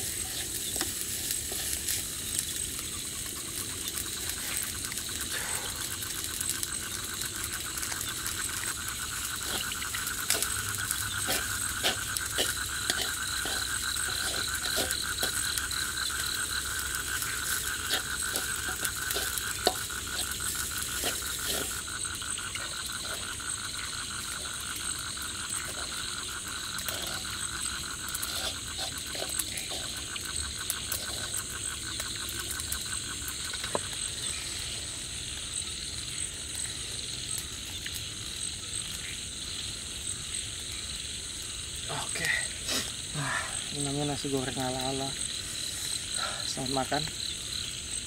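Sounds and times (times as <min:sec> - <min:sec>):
wooden spatula scraping wok: 0:00.0 - 0:02.2, 0:09.4 - 0:16.4, 0:17.1 - 0:22.0, 0:26.8 - 0:30.1
frogs trilling: 0:00.0 - 0:48.0
high insect buzz: 0:00.0 - 0:48.0.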